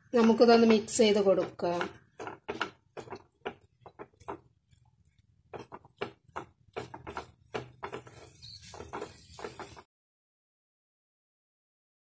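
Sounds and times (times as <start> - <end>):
wooden spatula scraping a pan: 0.0 - 9.9.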